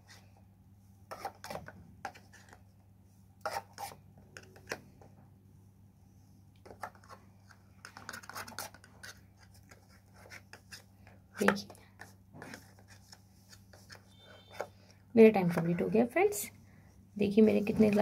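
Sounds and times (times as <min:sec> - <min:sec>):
paper cups scraping and clicking: 0:06.6 - 0:14.8, 0:17.3 - 0:18.0.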